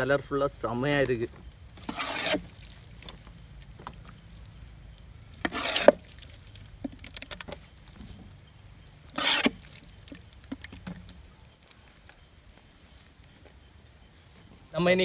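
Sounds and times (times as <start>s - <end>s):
wet food scooping slops: 1.8s - 8.0s.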